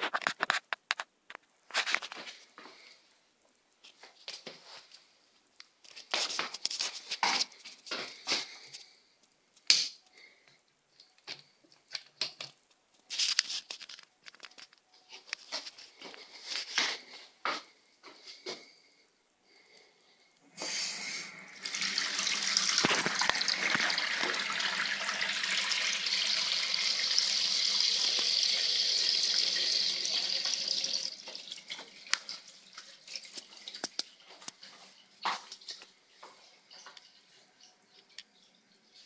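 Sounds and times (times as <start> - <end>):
tap water running into sink: 21.6 - 34.1.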